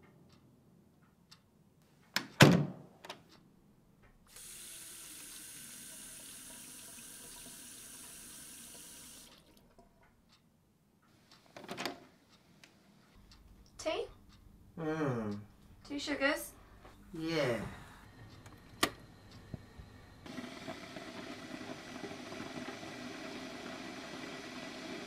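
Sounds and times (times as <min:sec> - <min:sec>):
water tap running: 0:04.3 - 0:09.6, 0:20.2 - 0:25.0.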